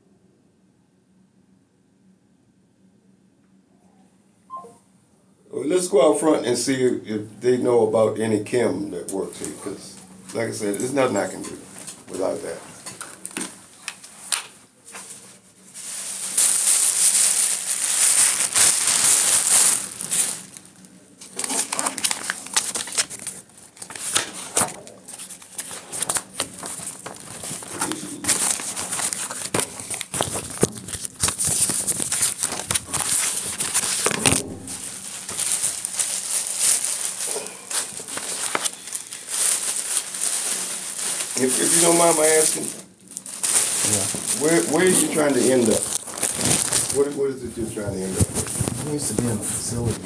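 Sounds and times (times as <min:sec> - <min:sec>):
cloth rubbing on microphone: 0:47.6 - 0:50.0.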